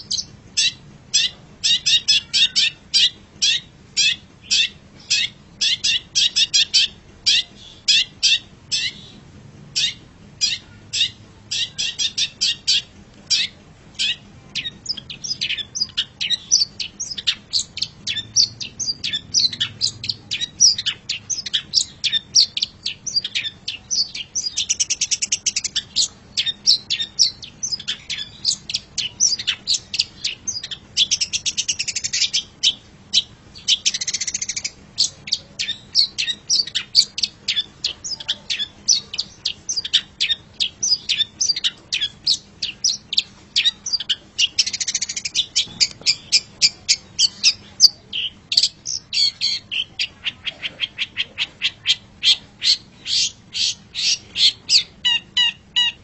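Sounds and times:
bird chirping and trilling: 0.0 - 56.0.

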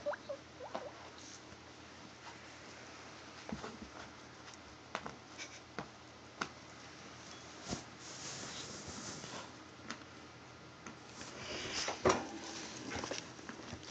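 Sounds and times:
rustling in dry hay: 7.6 - 9.5.

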